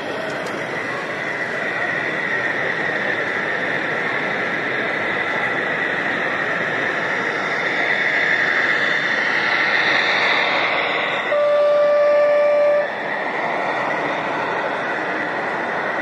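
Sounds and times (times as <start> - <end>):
hall noise: 0.0 - 16.0
model train running by: 0.0 - 16.0
model train horn blast: 11.3 - 13.0.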